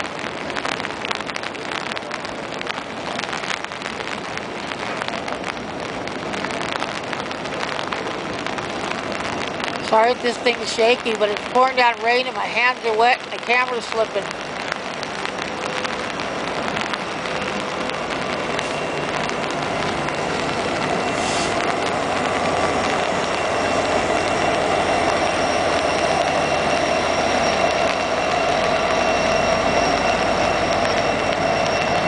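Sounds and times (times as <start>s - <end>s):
freight train wheels rumbling on rail: 0.0s - 32.0s
pouring rain: 0.0s - 32.0s
faint high whine: 7.4s - 32.0s.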